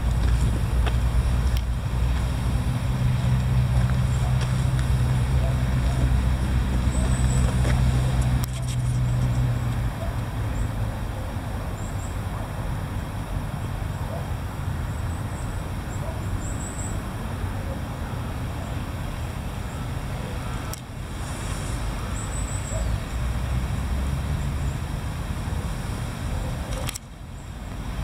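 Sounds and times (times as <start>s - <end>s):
road traffic noise: 0.0s - 28.0s
vehicle engine hum: 0.0s - 28.0s.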